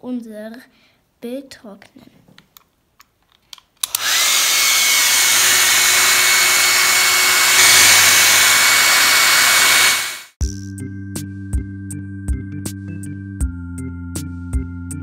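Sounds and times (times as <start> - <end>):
hair dryer blowing: 3.8 - 10.4
background music with beat: 10.4 - 15.0.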